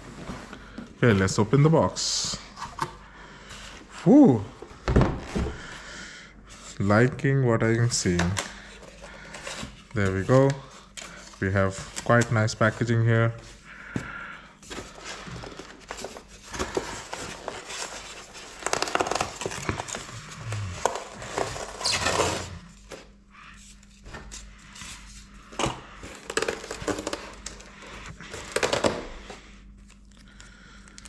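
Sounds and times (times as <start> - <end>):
plastic wrap and foam crinkling: 14.6 - 23.1, 26.0 - 29.2.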